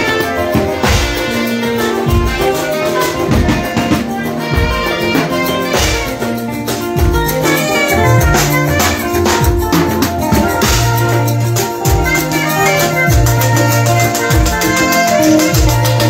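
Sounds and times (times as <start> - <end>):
drum kit beat: 0.0 - 16.0
live band playing: 0.0 - 16.0
saxophone: 0.0 - 16.0.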